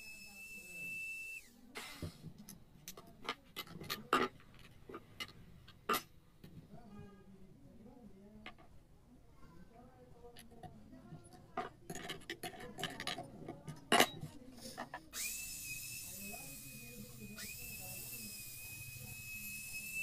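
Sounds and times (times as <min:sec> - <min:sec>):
circular saw whining: 0:00.0 - 0:01.6, 0:15.1 - 0:20.0.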